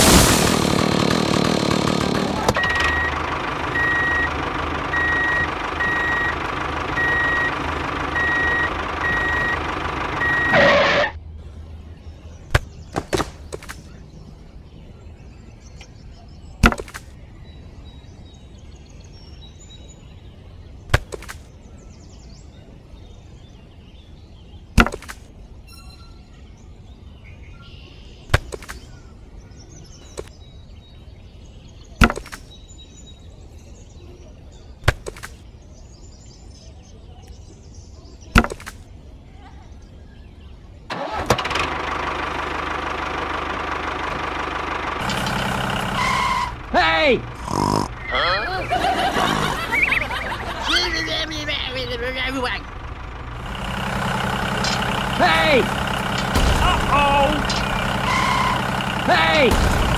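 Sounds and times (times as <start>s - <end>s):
sharp knocks of sticks set down: 38.4s - 38.8s.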